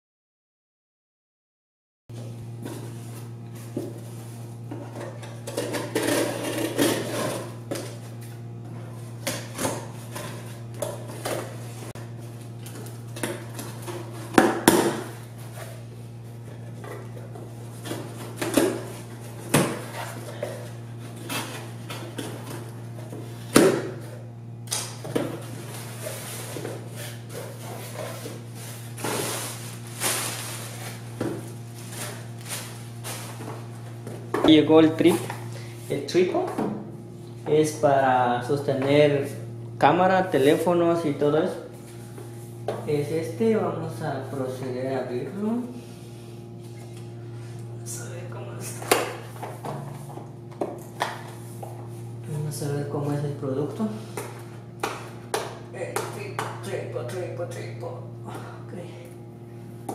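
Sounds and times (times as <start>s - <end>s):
steady low hum: 2.2s - 59.9s
plastic packaging rustling: 27.4s - 33.9s.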